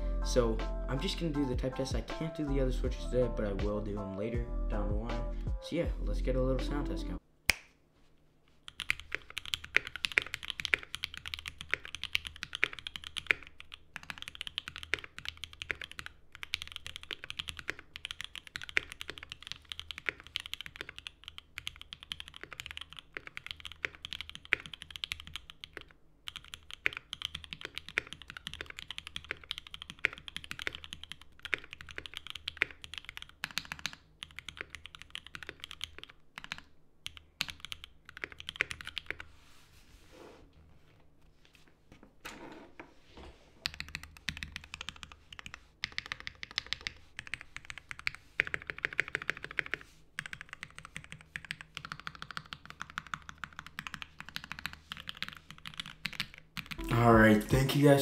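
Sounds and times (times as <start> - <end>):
mechanical keyboard typing: 8.7 - 39.2, 43.6 - 56.9.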